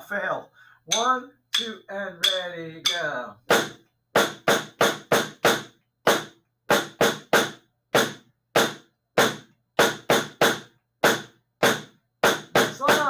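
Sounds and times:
snare drum hits: 1.6 - 13.0.

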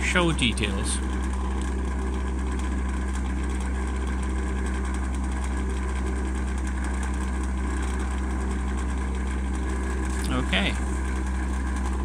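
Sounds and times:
charger fans humming: 0.0 - 12.0.

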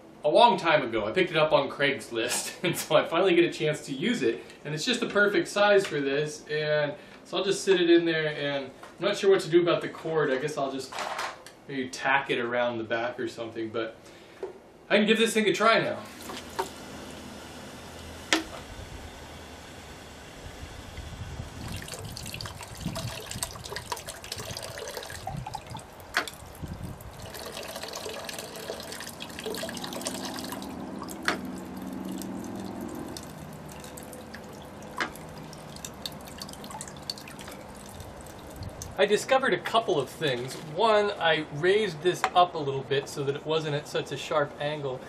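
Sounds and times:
sharp bamboo knocks: 18.3 - 18.6
water trickling and splashing: 20.9 - 39.0.

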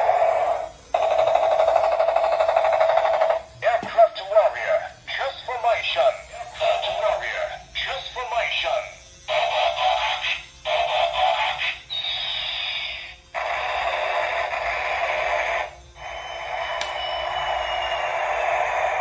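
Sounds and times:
toy electronic sound effects: 0.0 - 19.0
falling whistle-like sweep: 16.0 - 19.0.

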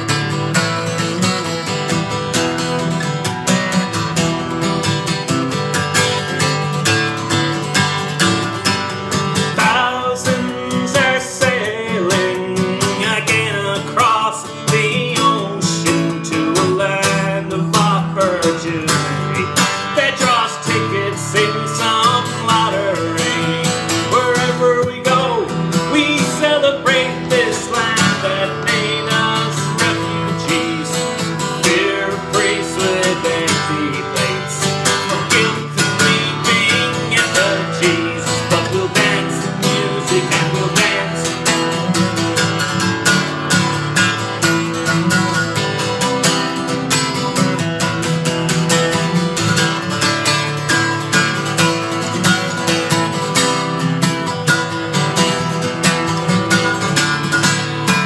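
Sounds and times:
acoustic guitar strumming: 0.0 - 58.0
wordless singing: 9.5 - 41.8.

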